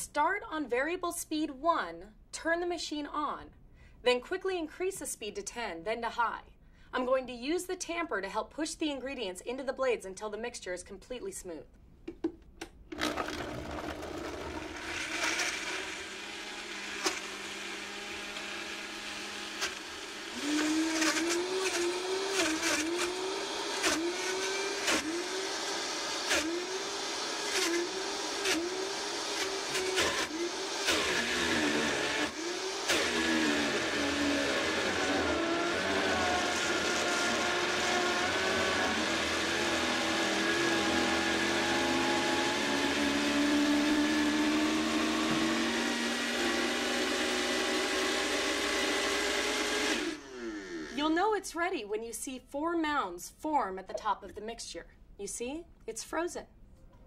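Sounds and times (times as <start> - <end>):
blender motor whirring: 12.9 - 51.0.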